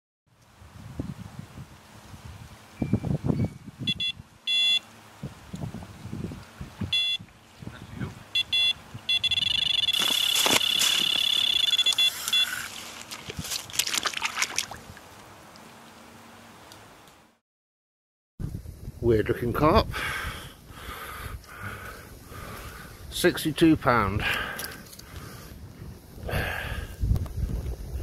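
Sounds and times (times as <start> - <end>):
bite alarm beeping: 2.8 - 4.8, 6.9 - 7.2, 8.3 - 12.7
rustling: 9.8 - 14.6.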